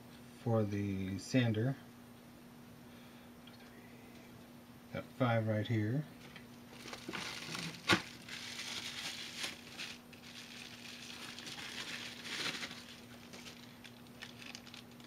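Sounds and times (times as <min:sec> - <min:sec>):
bubble wrap crinkling: 0:06.7 - 0:15.0.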